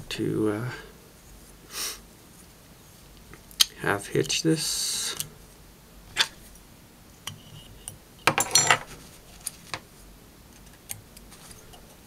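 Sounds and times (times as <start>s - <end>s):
small metal tools clinking: 8.3s - 8.9s.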